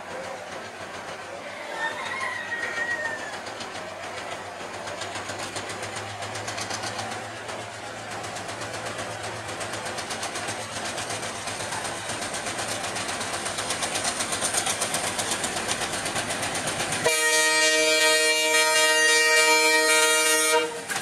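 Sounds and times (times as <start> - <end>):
diesel locomotive running: 0.0 - 21.0
locomotive horn blast: 17.0 - 21.0.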